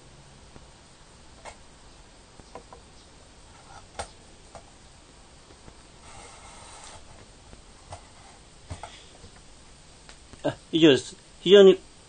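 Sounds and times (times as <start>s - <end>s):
short rustling scrape: 6.0s - 7.2s.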